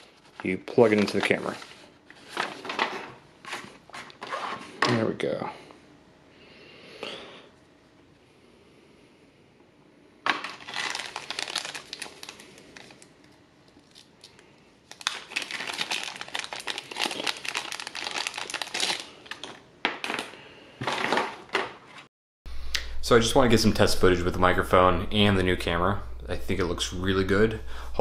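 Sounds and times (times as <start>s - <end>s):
plastic bag crinkling: 10.3s - 21.7s.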